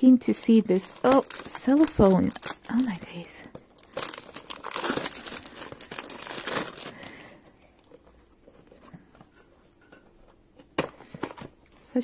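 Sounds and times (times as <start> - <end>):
cellophane crinkling and tearing: 0.0 - 8.2.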